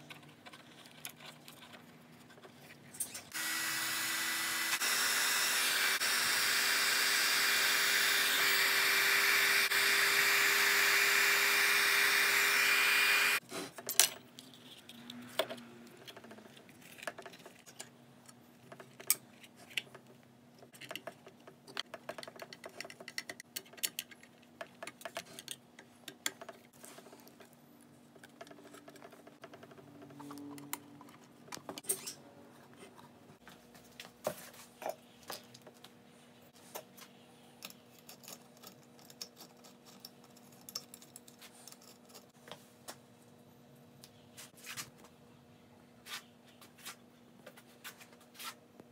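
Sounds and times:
heat gun blowing air: 0:03.3 - 0:13.4.

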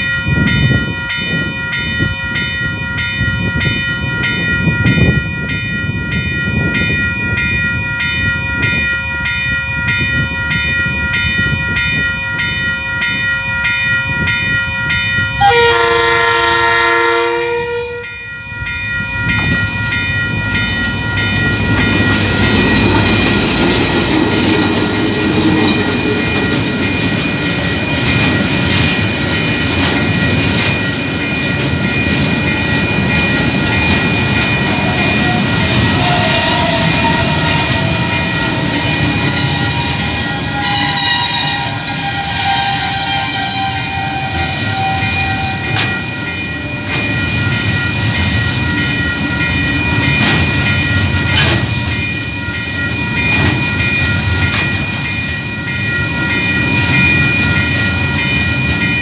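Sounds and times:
level crossing bell ringing: 0:00.0 - 0:59.0
train wagons rumbling over rails: 0:00.0 - 0:59.0
train horn blast: 0:15.4 - 0:18.2.

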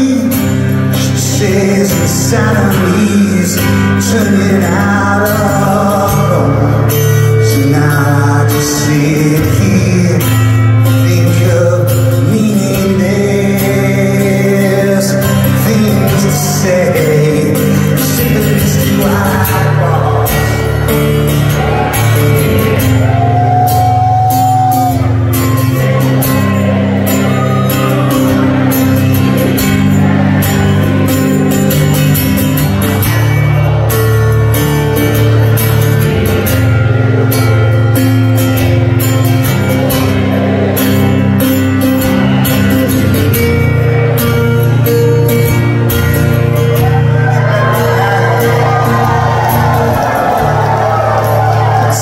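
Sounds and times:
man singing: 0:00.0 - 0:52.0
rock band playing: 0:00.0 - 0:52.0
strummed guitar: 0:00.0 - 0:52.0.

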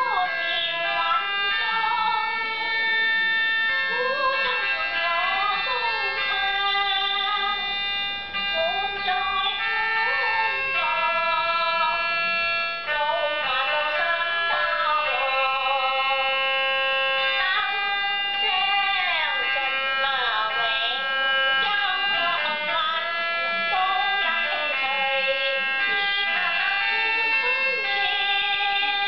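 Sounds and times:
elderly woman singing: 0:00.0 - 0:03.0, 0:03.9 - 0:07.7, 0:08.4 - 0:12.0, 0:12.8 - 0:16.4, 0:17.2 - 0:29.0.

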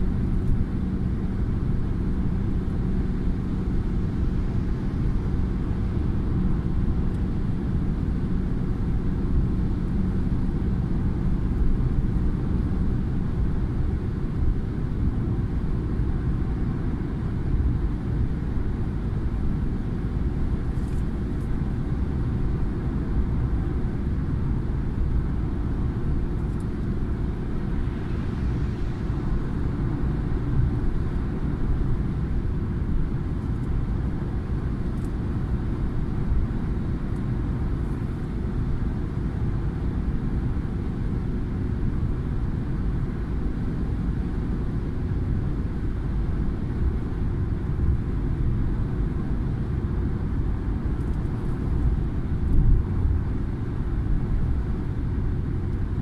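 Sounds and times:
car tyre and engine rumble: 0:00.0 - 0:56.0.

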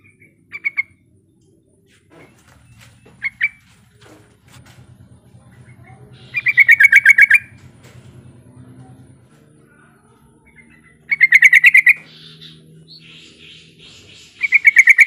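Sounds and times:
bulbul calling: 0:00.0 - 0:01.0, 0:03.0 - 0:03.6, 0:05.6 - 0:07.6, 0:10.4 - 0:15.0.

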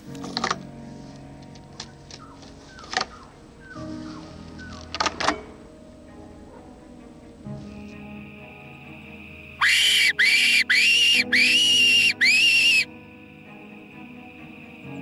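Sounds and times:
fox whistle calls: 0:09.6 - 0:12.9.

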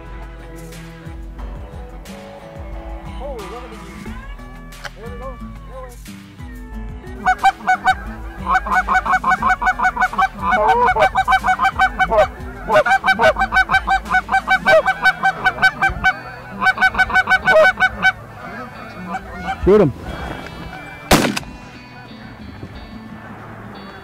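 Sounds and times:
goose calls clucking and honking: 0:07.1 - 0:21.2.

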